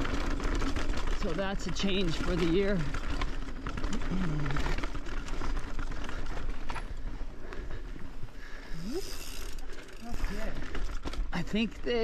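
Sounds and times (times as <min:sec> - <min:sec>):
bike knocks and rattles: 0:00.0 - 0:07.3
tyres crunching over stones: 0:00.0 - 0:07.4.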